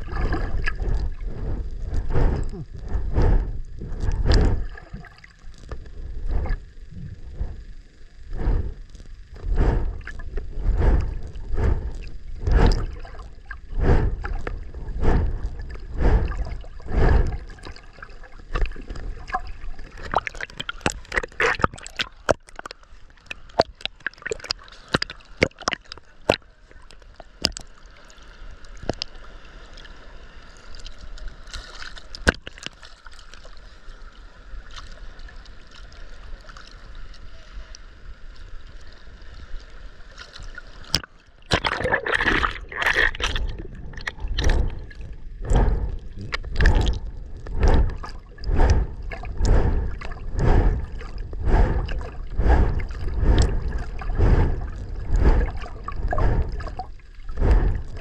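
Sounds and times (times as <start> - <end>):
bubbles and gurgling: 0.0 - 7.7, 8.3 - 27.8, 40.1 - 58.0
underwater rush: 0.0 - 37.2, 38.0 - 58.0.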